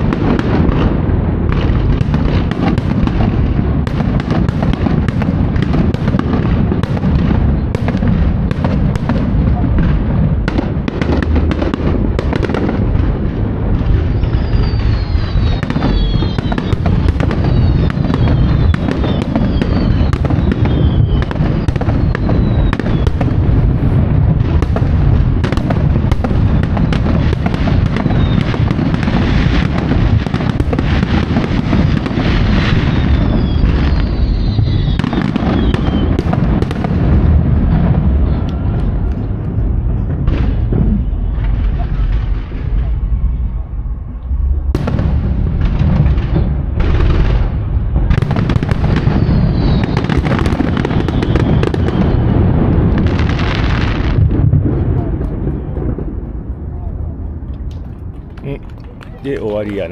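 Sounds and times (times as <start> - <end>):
fireworks booming: 0.0 - 59.9
fireworks crackling: 0.0 - 59.9
fireworks whistles sliding down: 14.0 - 24.0, 32.0 - 36.3, 48.5 - 52.5.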